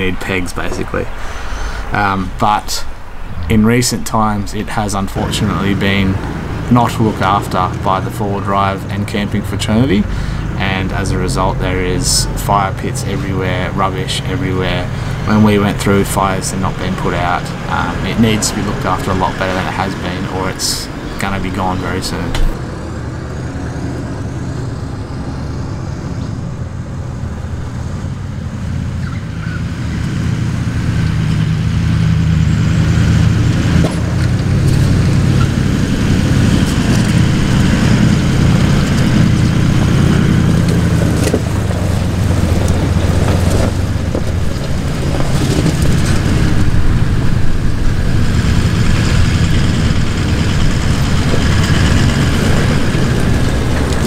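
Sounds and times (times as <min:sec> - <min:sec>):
engines running at low revs: 0:00.0 - 0:54.0
tyres crunching on stones: 0:33.6 - 0:48.2.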